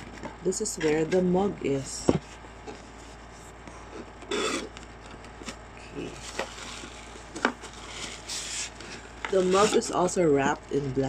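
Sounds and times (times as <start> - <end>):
paper and cardboard rustling: 2.2 - 10.6
packaging scrapes: 4.3 - 4.7, 6.0 - 10.1.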